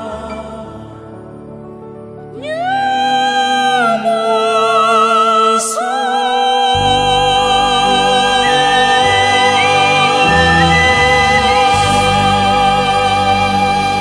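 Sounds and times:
slow melody with held notes: 0:00.0 - 0:14.0
low bass line: 0:06.8 - 0:14.0.

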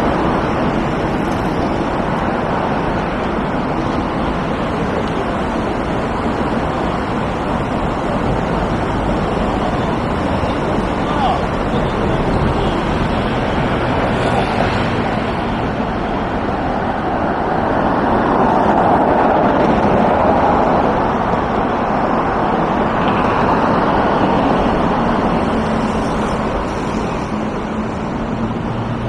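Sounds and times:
cars passing: 0:00.0 - 0:29.0.

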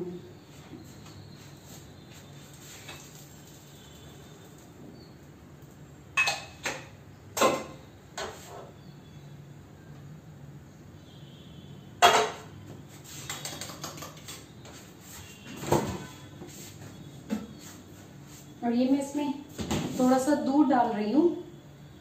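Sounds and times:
dishes and utensils clinking: 0:06.2 - 0:06.8, 0:12.0 - 0:12.5.

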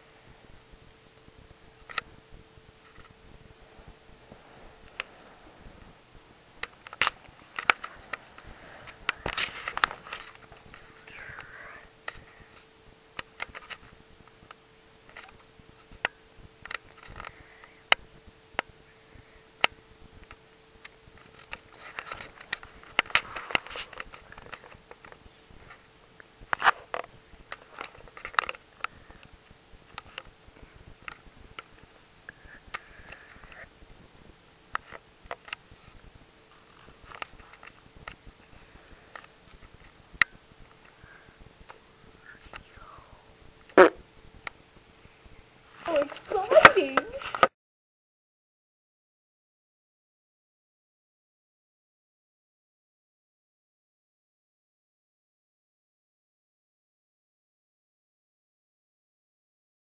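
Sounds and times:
faint steady hum: 0:00.0 - 0:47.5
camera handling noise: 0:06.6 - 0:10.8.

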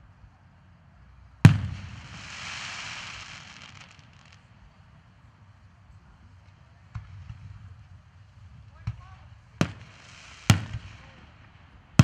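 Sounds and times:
fireworks crackling and hissing: 0:00.0 - 0:12.0
fireworks bang echo: 0:01.4 - 0:04.6, 0:06.8 - 0:12.0.

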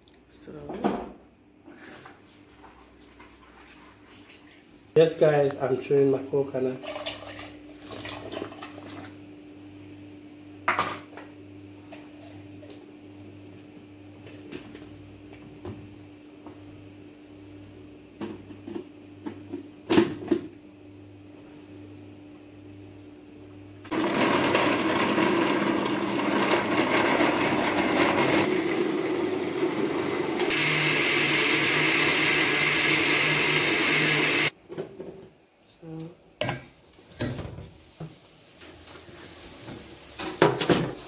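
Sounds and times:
blender grinding: 0:23.9 - 0:34.5.

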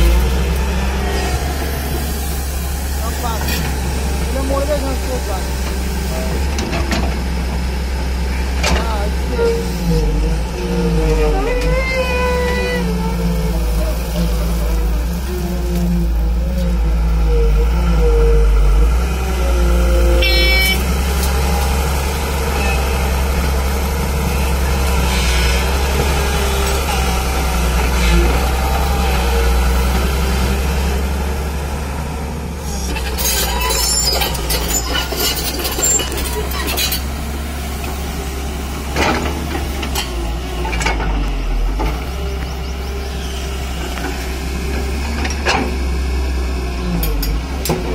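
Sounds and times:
excavator diesel engine drone: 0:00.0 - 0:47.9
brief high tone: 0:20.1 - 0:20.9.

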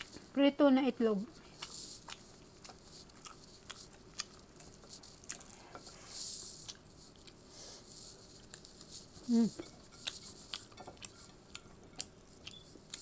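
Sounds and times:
person humming: 0:09.3 - 0:09.6.

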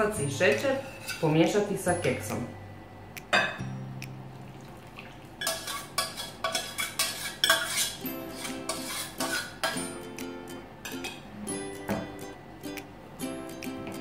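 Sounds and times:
spoon clinking and scraping saucepan: 0:00.3 - 0:01.7, 0:05.4 - 0:09.9.

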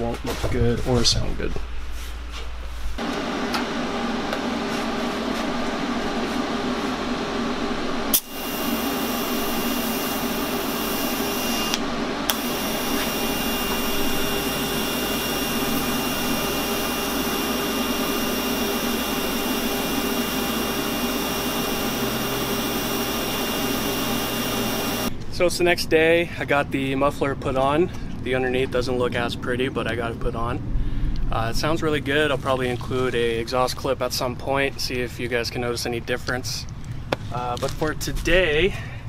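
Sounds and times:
thin high whine: 0:00.0 - 0:25.6
welding arc hum and hiss: 0:02.0 - 0:25.2.

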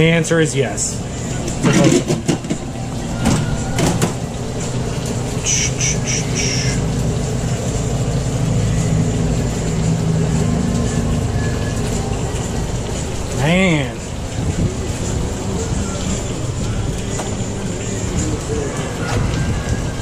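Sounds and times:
low mechanical drone: 0:00.0 - 0:20.0
short hissy bursts: 0:05.4 - 0:06.8.

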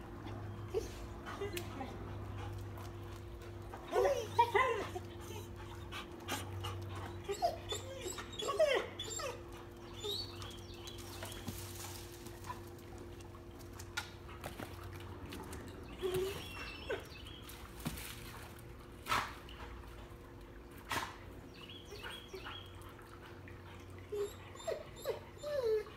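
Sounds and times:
dogs whining and whimpering: 0:00.2 - 0:01.5, 0:03.8 - 0:11.3, 0:15.8 - 0:17.3, 0:24.0 - 0:25.9.

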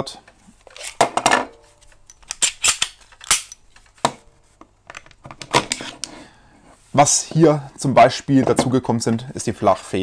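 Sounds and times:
pistol metallic clicks: 0:02.1 - 0:03.6.

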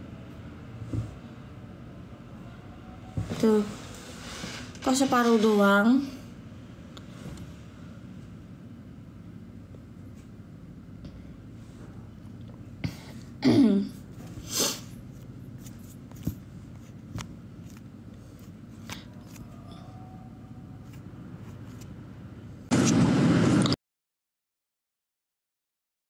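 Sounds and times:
person clearing throat: 0:12.9 - 0:14.0
loud noise burst: 0:22.7 - 0:23.8.

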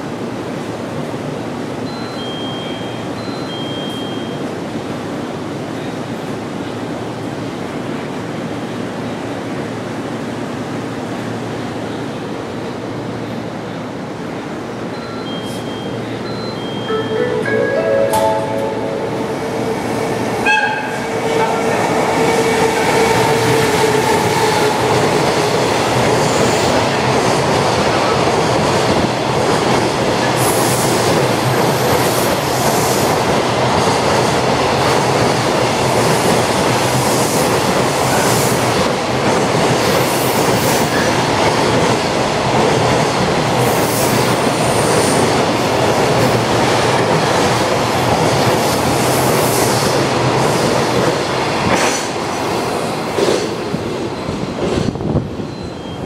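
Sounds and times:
freight train roar and rattle: 0:00.0 - 0:56.0
high-pitched wheel squeals: 0:55.5 - 0:56.0.

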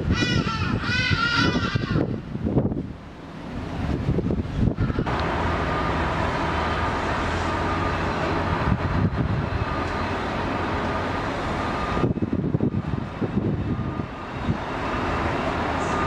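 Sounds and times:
wind on microphone: 0:00.0 - 0:05.2, 0:08.4 - 0:09.8, 0:11.7 - 0:14.8
engine drone with whine: 0:00.0 - 0:16.0.

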